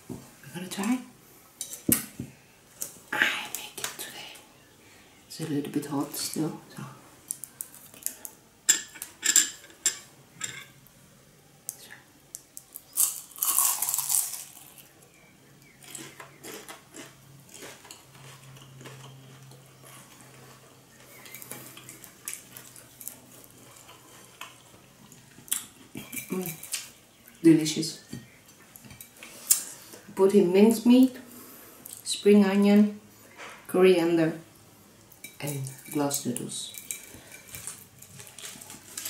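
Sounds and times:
chewing: 15.6 - 27.4.

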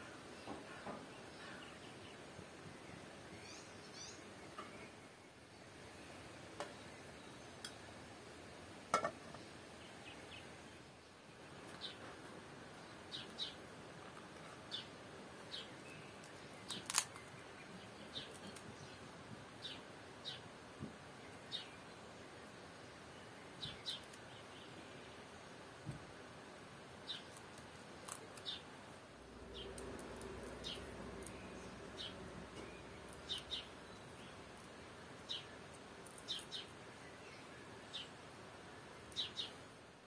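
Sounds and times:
small bird chirping: 0.0 - 7.9, 9.3 - 13.7, 14.3 - 20.5, 23.0 - 25.3, 27.0 - 28.7, 29.4 - 38.2, 38.8 - 39.8
faint outdoor hiss: 0.0 - 40.0.

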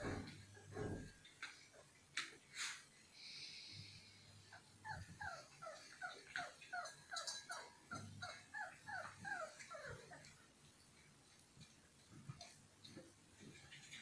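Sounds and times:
puppy whimpering: 4.5 - 10.4.

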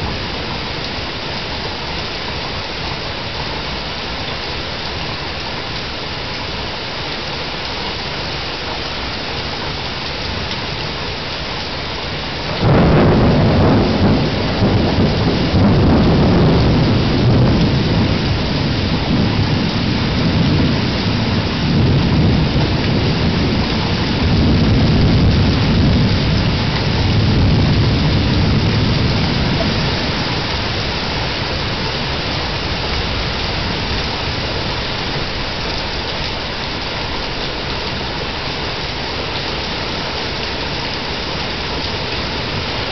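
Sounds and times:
steady rain hissing: 0.0 - 42.9
thunderclap and rolling rumble: 11.8 - 42.9.

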